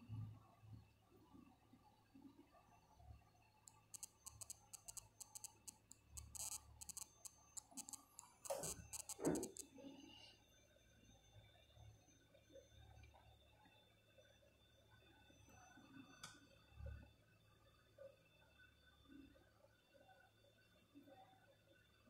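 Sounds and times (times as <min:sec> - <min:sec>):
tweezers ticking on connector: 0:03.7 - 0:09.6.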